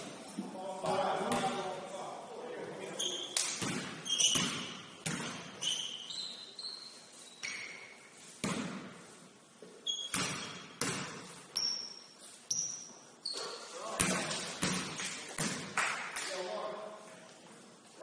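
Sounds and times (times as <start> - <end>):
sneaker squeaks: 2.9 - 8.7, 9.7 - 10.9, 11.5 - 13.8
basketball bouncing on hardwood floor: 10.2 - 11.2.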